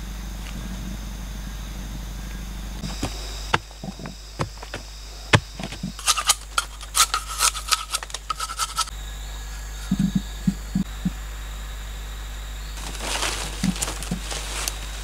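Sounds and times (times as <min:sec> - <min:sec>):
knife scraping bamboo: 0:05.6 - 0:08.9.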